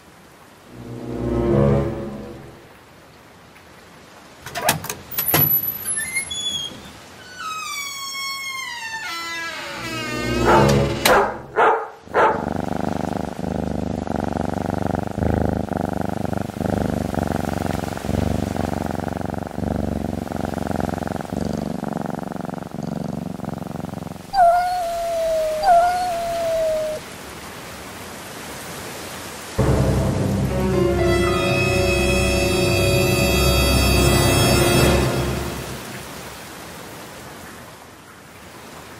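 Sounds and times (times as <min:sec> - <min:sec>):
eerie music: 0:00.7 - 0:02.7, 0:09.8 - 0:11.4, 0:29.6 - 0:36.2
cat purring: 0:12.1 - 0:27.0
cat meowing: 0:24.3 - 0:27.0.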